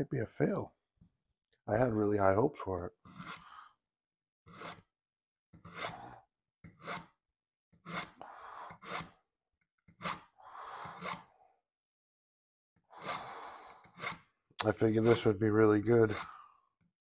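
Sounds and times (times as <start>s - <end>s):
knife scraping paper edge: 3.1s - 3.4s, 4.5s - 4.9s, 5.6s - 6.0s, 15.0s - 15.3s.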